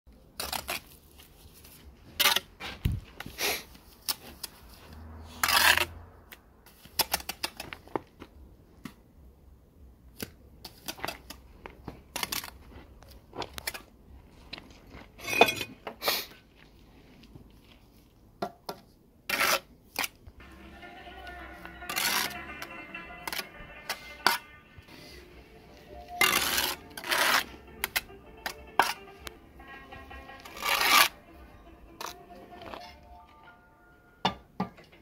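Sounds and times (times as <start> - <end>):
trowel scraping on bricks: 2.1 - 3.0, 5.3 - 6.0, 19.3 - 20.2, 21.2 - 25.2, 26.0 - 31.3, 31.9 - 33.0.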